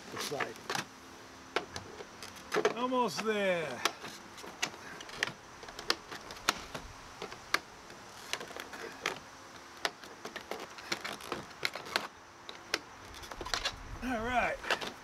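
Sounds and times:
vinyl trim clicking and snapping: 1.6 - 9.2.

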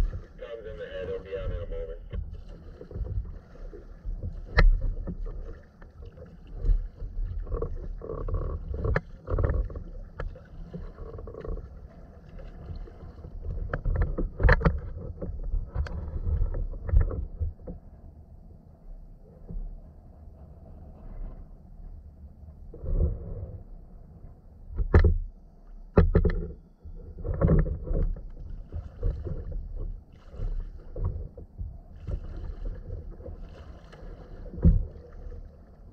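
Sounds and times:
paddle strokes splashing: 0.0 - 18.0, 27.0 - 35.9
water slapping a kayak hull: 0.0 - 21.4, 24.7 - 35.9
low rumble: 0.0 - 25.9
sharp knocks against hull: 4.1 - 5.6, 24.8 - 25.3, 25.9 - 26.6, 34.5 - 35.0.

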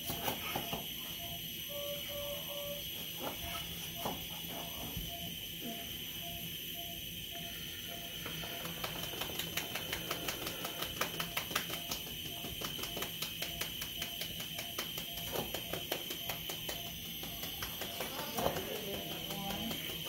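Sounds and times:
monitor beeping steadily: 0.0 - 20.0
fast run of sharp clicks: 8.6 - 20.0.

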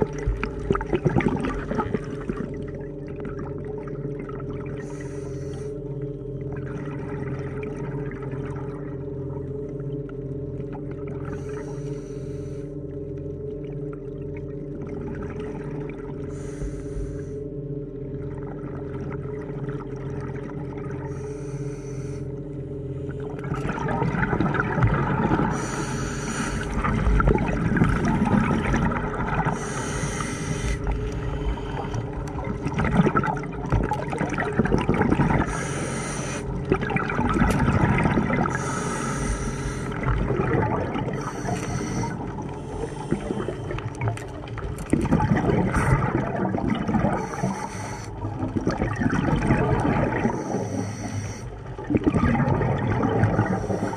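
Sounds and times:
exhaled bubbles burbling: 0.0 - 5.1, 5.8 - 11.7, 13.2 - 16.5, 17.8 - 21.2, 23.1 - 53.9
diver regulator inhale hiss: 4.8 - 6.0, 11.3 - 12.8, 16.2 - 17.6, 21.1 - 23.4, 25.4 - 28.8, 29.4 - 32.3, 35.3 - 36.7, 38.4 - 40.4, 41.0 - 44.0, 47.1 - 48.5, 50.1 - 51.8, 53.3 - 53.9.

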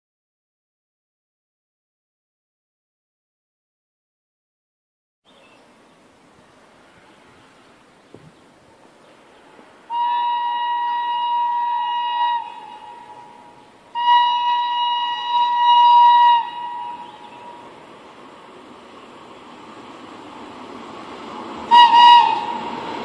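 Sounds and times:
horn blasts: 9.9 - 17.7, 21.7 - 22.8.

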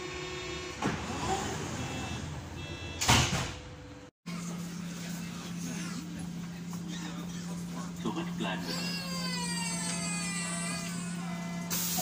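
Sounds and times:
train sliding doors closing: 0.2 - 3.7.

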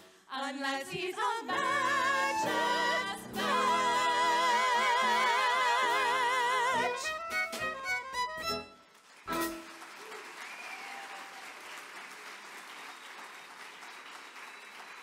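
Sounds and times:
piano and band closing chord: 1.5 - 5.3
audience applause: 8.8 - 15.0.

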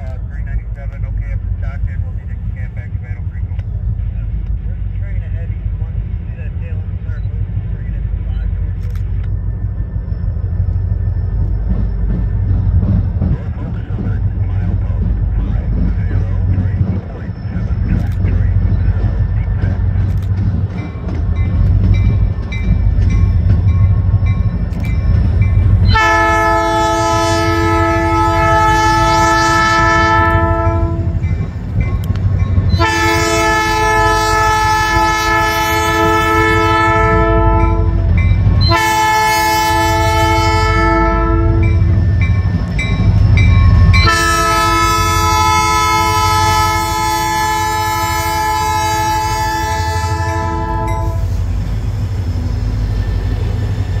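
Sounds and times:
diesel engine rumbling: 0.0 - 54.0
locomotive air horn blasts: 25.8 - 31.2, 32.7 - 42.0, 43.8 - 51.5.

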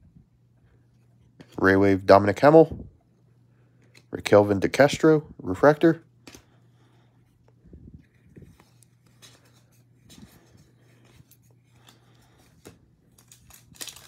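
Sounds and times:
low steady hum: 0.0 - 14.0
trading cards rustling: 7.2 - 14.0
wrapper crinkling: 13.0 - 14.0.

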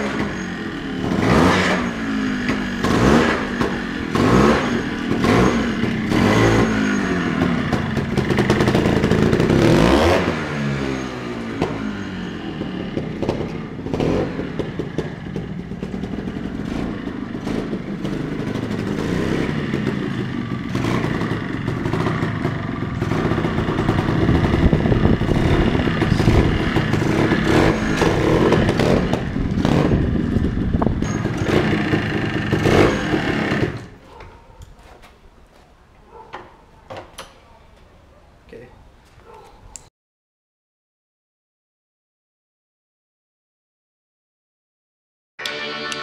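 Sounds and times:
two-stroke motorbike engine: 0.0 - 34.1.

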